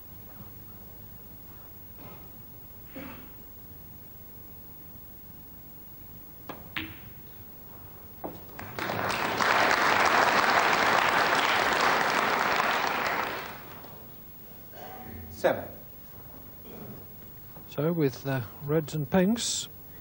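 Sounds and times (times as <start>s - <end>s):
audience applauding: 8.5s - 13.8s.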